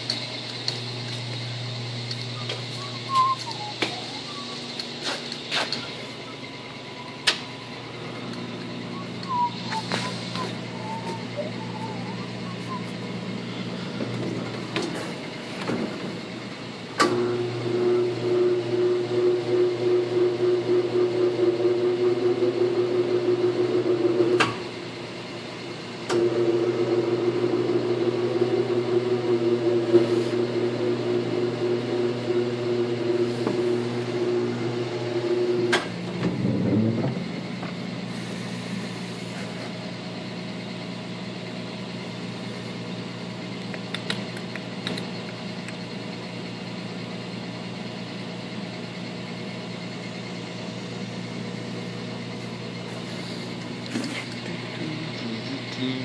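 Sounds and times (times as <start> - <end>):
falling whine: 0.0 - 16.1
tire balancer spinning: 0.0 - 16.4
phase converter humming: 0.0 - 56.0.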